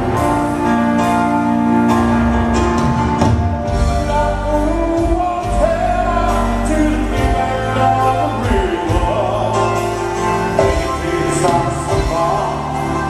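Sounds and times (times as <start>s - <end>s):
deep bass: 0.0s - 13.0s
live rock ballad with piano: 0.0s - 13.0s
man singing long notes: 3.9s - 13.0s.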